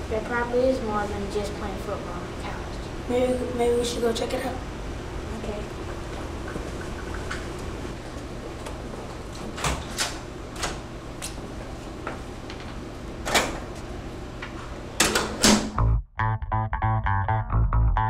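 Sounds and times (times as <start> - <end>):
room hum: 0.0 - 16.0.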